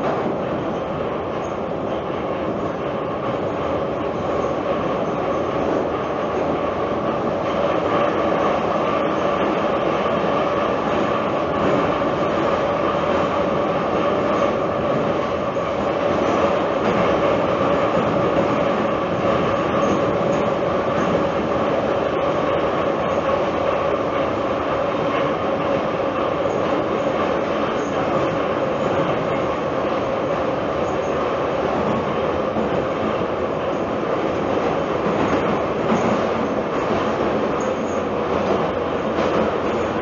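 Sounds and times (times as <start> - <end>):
train whine: 0.0 - 40.0
wheels rumbling on rail: 0.0 - 40.0.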